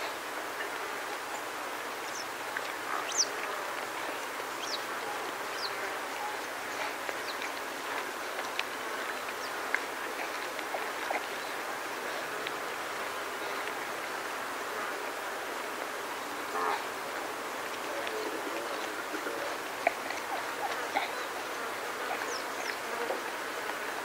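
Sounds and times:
small birds chirping: 1.3s - 11.6s, 18.0s - 23.2s.

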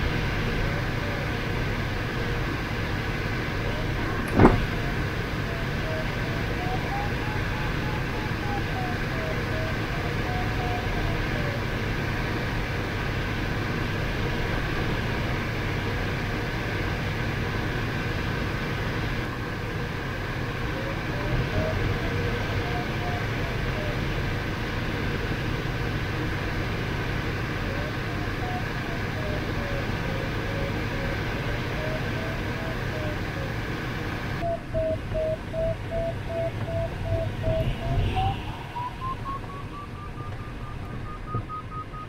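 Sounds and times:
cockpit airflow rush: 0.0s - 9.5s
pulsed variometer beeping: 20.0s - 33.6s, 34.4s - 42.0s.

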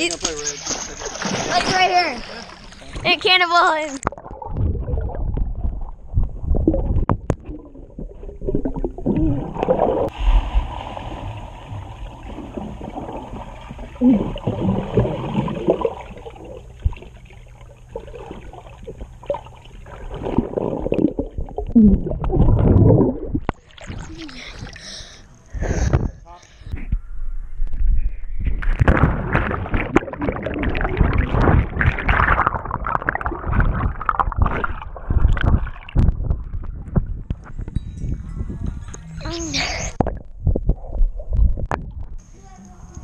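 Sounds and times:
water splashing: 0.0s - 25.2s, 28.6s - 37.6s
muffled underwater sloshing: 0.0s - 26.6s, 28.5s - 37.8s.

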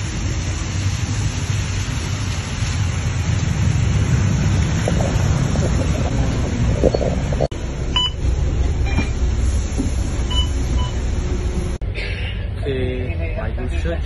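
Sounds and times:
bus engine rumble: 0.0s - 14.0s
short electronic beep: 7.9s - 8.2s.

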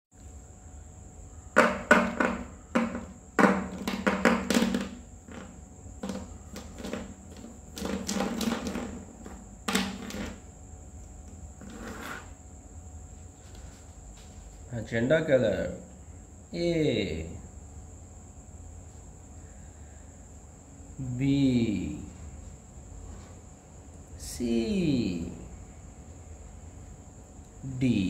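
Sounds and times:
faint high whine: 0.2s - 28.0s
marker pens clattering on table: 2.2s - 10.4s.

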